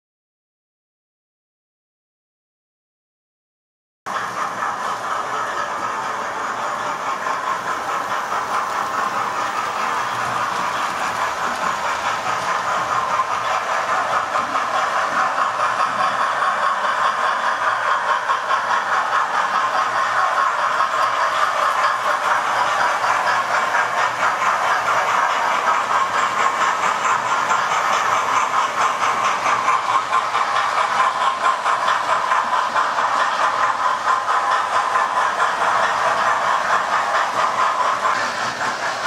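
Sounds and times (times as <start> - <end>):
wheels clattering on rails: 4.1 - 39.0.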